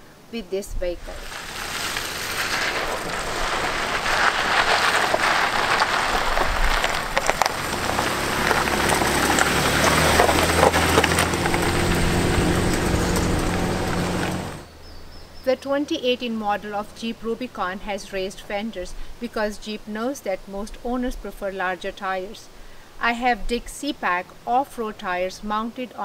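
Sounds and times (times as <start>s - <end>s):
tyres crunching over gravel: 0.9s - 14.8s
car engine hum: 1.0s - 14.8s.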